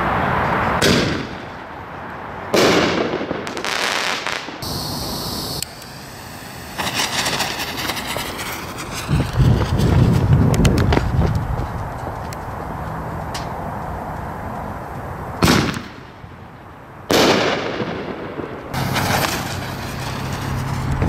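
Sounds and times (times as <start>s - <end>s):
firework crack: 0.8s - 1.6s, 2.5s - 11.5s, 15.4s - 16.2s, 17.1s - 21.0s
firework bang: 2.6s - 11.2s, 17.1s - 21.0s
firework crackling: 2.6s - 11.6s, 18.7s - 21.0s.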